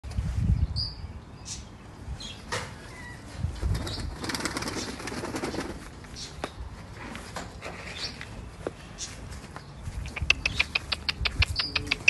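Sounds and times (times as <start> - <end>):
pigeon wings flapping: 3.7 - 5.9.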